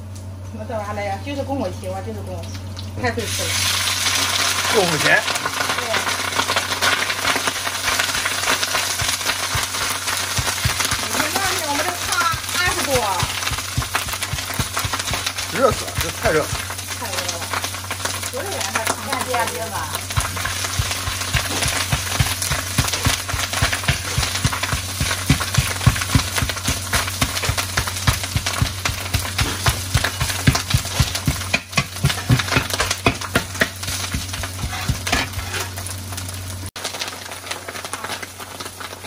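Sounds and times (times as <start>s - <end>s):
steady low hum: 0.0s - 36.7s
hot oil sizzling: 1.7s - 39.0s
metal ladle scraping iron wok: 34.3s - 35.9s.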